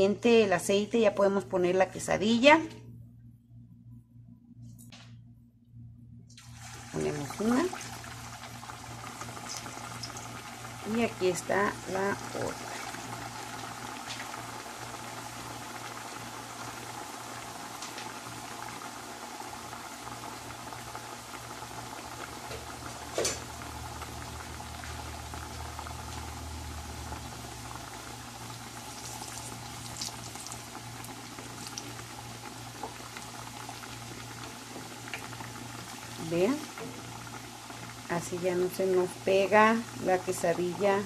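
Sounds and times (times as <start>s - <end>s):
food deep-frying in oil: 6.4s - 41.0s.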